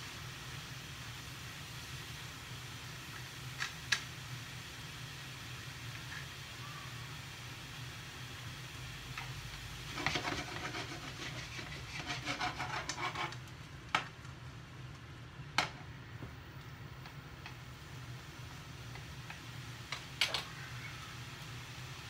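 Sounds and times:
chopsticks scraping frying pan: 9.8 - 14.1.

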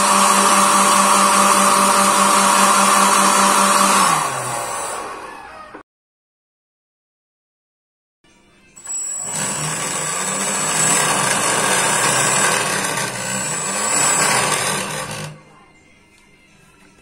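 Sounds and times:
electric ducted fan whining: 0.0 - 5.8.

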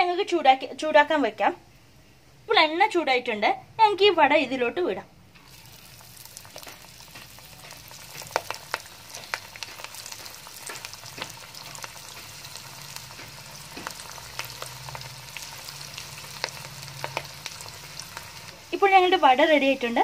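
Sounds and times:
deep-frying sizzle with pops: 5.3 - 20.0.

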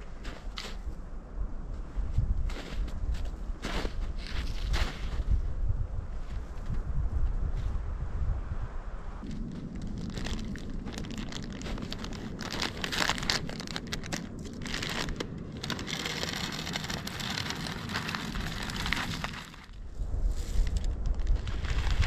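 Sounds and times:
plastic packet crinkling: 9.3 - 19.7.

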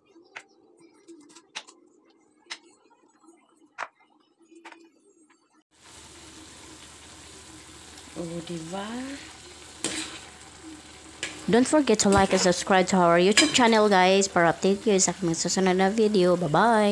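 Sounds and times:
vegetables sizzling in a pan: 5.7 - 16.9.

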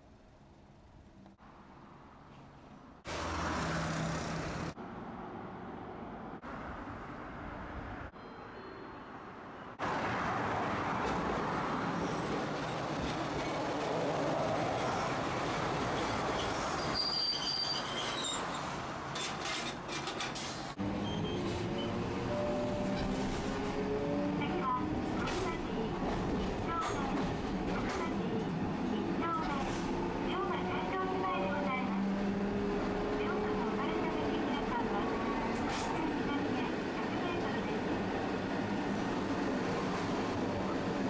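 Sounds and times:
street noise: 0.0 - 41.0
streetcar wheels rumbling on rails: 9.8 - 41.0
high wheel squeal: 16.3 - 18.7, 21.0 - 22.9.

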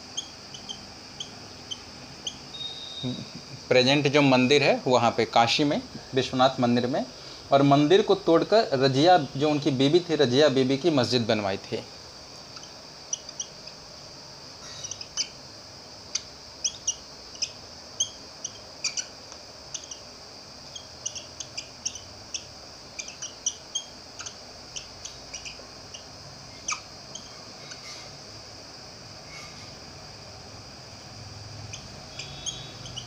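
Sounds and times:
marker squeaking on whiteboard: 0.1 - 3.1, 31.8 - 33.0.

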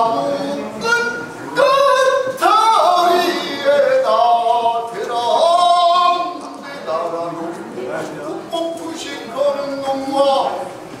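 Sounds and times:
man singing long notes: 0.0 - 7.5.

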